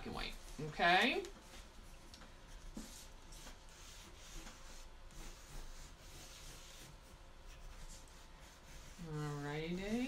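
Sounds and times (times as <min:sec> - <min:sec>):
pencil scratching on paper: 0:02.8 - 0:10.0.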